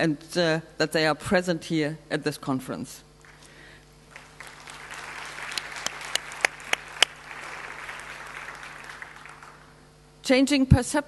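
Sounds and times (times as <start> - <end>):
audience applauding: 3.2 - 9.8
single loud claps: 4.1 - 9.7.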